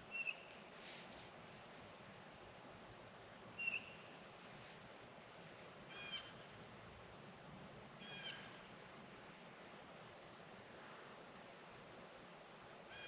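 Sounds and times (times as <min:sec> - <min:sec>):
faint bird calls: 0:00.0 - 0:00.6, 0:03.6 - 0:04.2, 0:05.9 - 0:06.6, 0:08.0 - 0:08.7.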